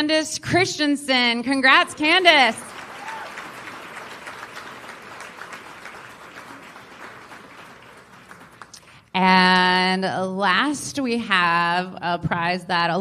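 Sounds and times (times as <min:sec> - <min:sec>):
audience applauding: 0:01.7 - 0:09.0.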